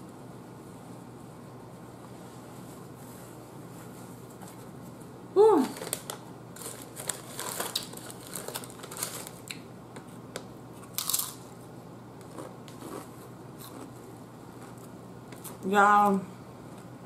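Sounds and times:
plastic chip bag crinkling: 5.6 - 9.6, 10.8 - 11.6
crunchy chips chewing: 5.7 - 9.6, 10.8 - 11.6, 12.2 - 15.6.

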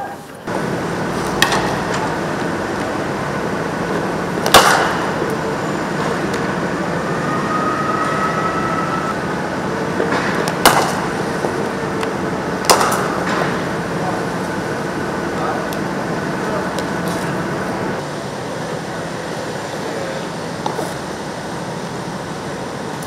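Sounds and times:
steady background noise: 0.0 - 23.0
cricket bat striking ball: 4.4 - 5.0.

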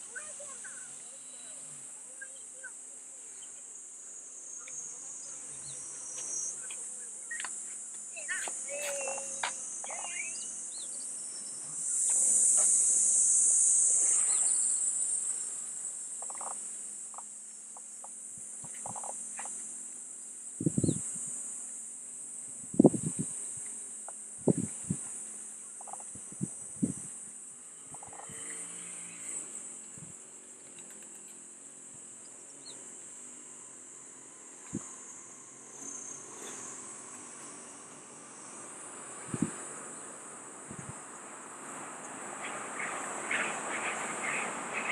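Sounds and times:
faint bird chirps: 0.0 - 3.6, 4.5 - 12.2, 14.0 - 14.8, 20.7 - 21.1
cicadas buzzing: 0.0 - 44.9.

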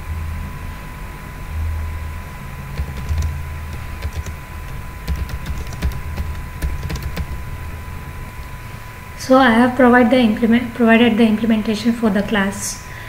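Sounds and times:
steady low hum: 0.0 - 13.0
keyboard key clicks: 2.8 - 7.4.

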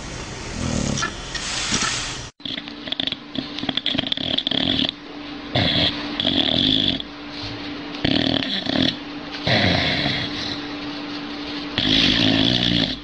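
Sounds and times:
dog snoring: 0.5 - 1.1, 2.4 - 10.7, 11.7 - 13.0
dog breathing: 2.8 - 13.0.

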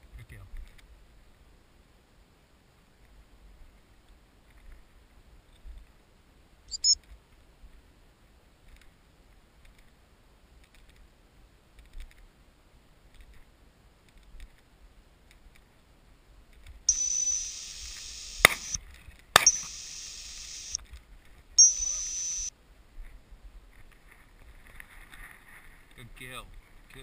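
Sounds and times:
high whistle blasts: 16.9 - 18.8, 19.4 - 20.8, 21.6 - 22.5.

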